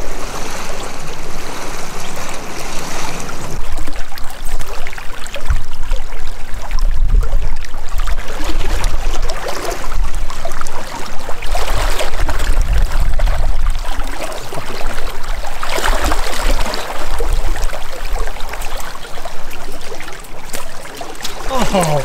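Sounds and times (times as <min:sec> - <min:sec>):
river rushing and splashing: 0:00.0 - 0:05.0, 0:20.5 - 0:22.0.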